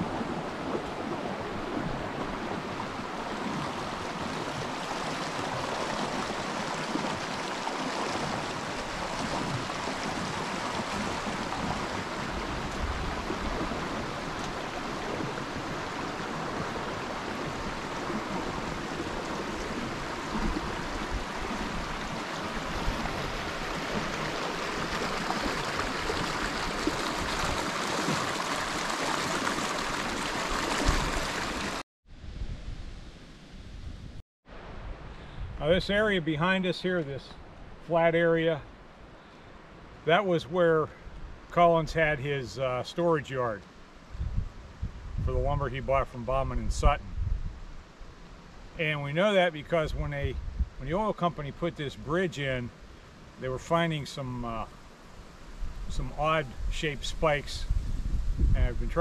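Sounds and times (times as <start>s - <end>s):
creek water running over rocks: 0.0s - 31.8s, 47.7s - 59.0s.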